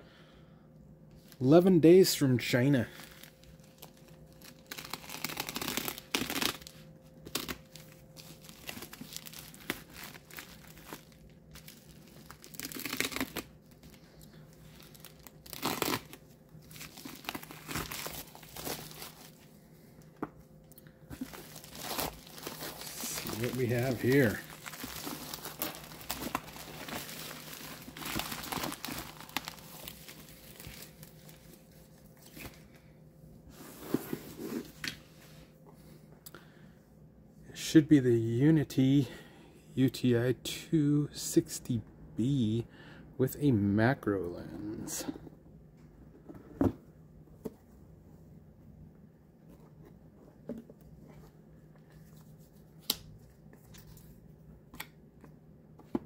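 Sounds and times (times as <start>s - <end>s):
bubble wrap crinkling: 2.8s - 19.5s, 21.1s - 32.6s
paper rustling: 21.2s - 31.4s.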